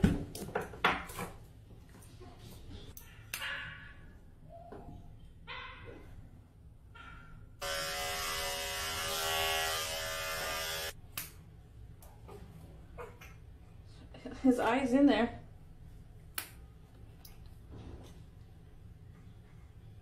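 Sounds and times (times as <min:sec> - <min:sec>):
electric pet clipper buzzing: 0:07.6 - 0:11.0.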